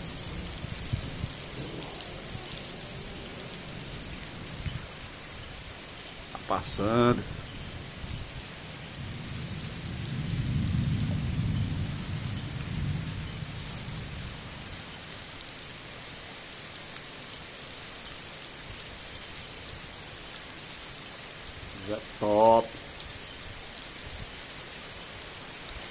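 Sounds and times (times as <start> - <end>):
thunder rumbling: 0.0 - 5.0, 6.6 - 15.2
heavy rain pouring: 0.0 - 25.9.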